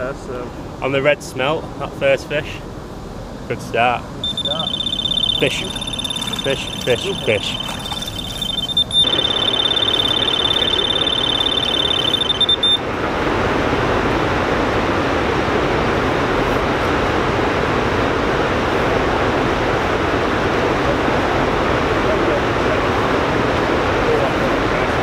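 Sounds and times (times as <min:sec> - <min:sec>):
bite alarm high-pitched beeping: 0:04.2 - 0:12.8
flowing river water: 0:04.3 - 0:25.0.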